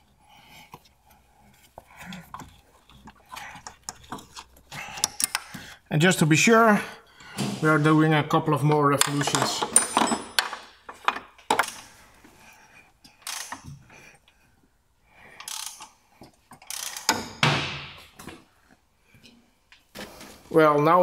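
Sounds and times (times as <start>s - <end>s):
ratchet wrench clicking: 13.2s - 13.7s, 15.4s - 15.9s, 16.6s - 17.2s.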